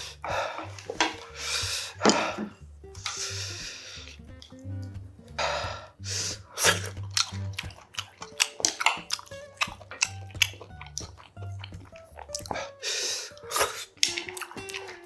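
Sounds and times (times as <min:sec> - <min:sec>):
noodle slurping: 0:00.0 - 0:15.0
quiet background music: 0:00.0 - 0:15.0
chewing and mouth clicks: 0:02.9 - 0:05.4, 0:06.0 - 0:15.0.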